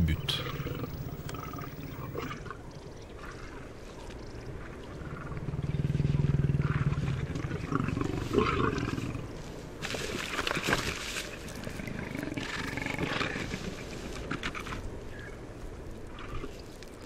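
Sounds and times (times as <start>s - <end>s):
big cats growling: 0.0s - 2.5s.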